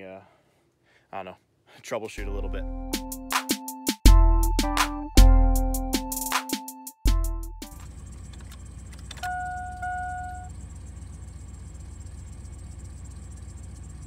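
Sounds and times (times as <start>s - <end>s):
truck engine idling: 7.6s - 14.0s
dashboard warning chime: 9.2s - 10.6s.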